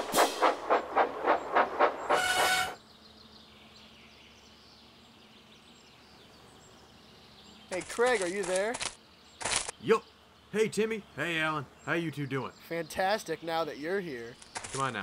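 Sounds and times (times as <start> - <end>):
steam locomotive chuffing: 0.0 - 2.8
birds: 0.7 - 15.0
locomotive whistle: 2.0 - 2.8.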